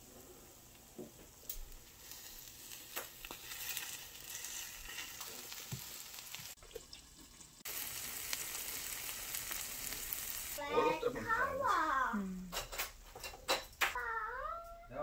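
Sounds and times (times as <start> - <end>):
food sizzling in a pan: 0.0 - 13.7.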